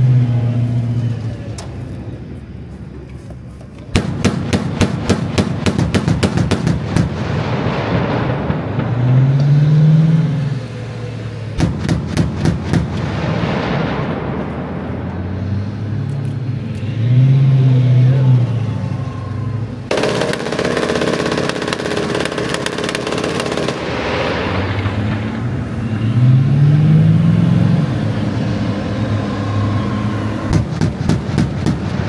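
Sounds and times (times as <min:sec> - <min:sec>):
tracked vehicle engine accelerating: 0:00.0 - 0:20.5, 0:21.2 - 0:32.0
automatic gunfire burst: 0:04.0 - 0:07.2, 0:19.9 - 0:24.1, 0:30.5 - 0:32.0
single gunshots: 0:04.0 - 0:09.0, 0:30.5 - 0:32.0.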